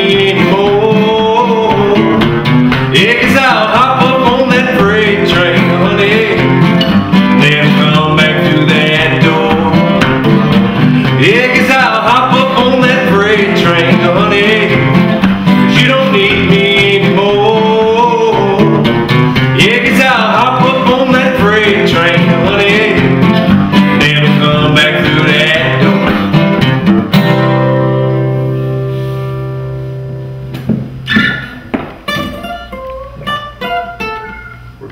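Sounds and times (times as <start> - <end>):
man singing: 0.0 - 26.5
acoustic guitars strumming: 0.0 - 34.9.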